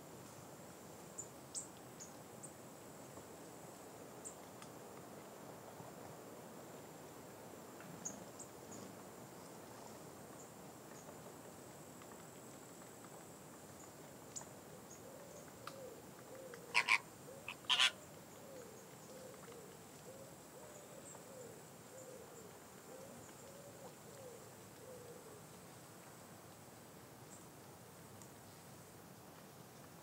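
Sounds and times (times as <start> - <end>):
flamingos honking: 16.7 - 18.0
soft low flock calls: 16.7 - 18.0.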